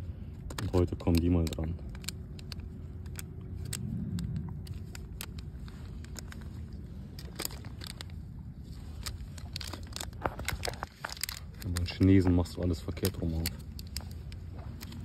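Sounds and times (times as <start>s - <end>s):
plastic packet crinkling and clicking: 0.4s - 15.0s
low rumble: 1.7s - 11.7s.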